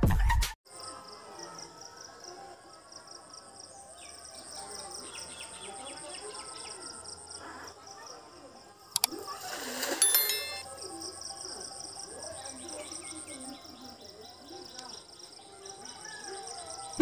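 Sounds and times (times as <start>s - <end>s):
net splashing into pond: 9.1s - 10.0s.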